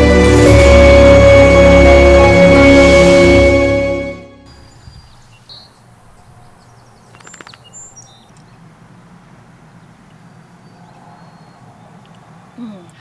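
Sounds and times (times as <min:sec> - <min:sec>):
birds chirping: 0:04.5 - 0:13.0
rattle of clicks: 0:07.1 - 0:08.5.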